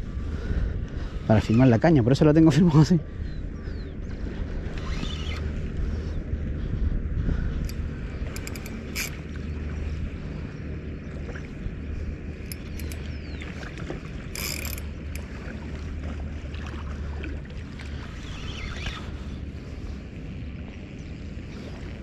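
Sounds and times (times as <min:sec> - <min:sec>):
low wind rumble on microphone: 0:00.0 - 0:22.0
fishing reel clicking and whirring: 0:04.6 - 0:06.0, 0:07.6 - 0:09.4, 0:12.1 - 0:13.5, 0:14.2 - 0:15.3, 0:18.1 - 0:19.4.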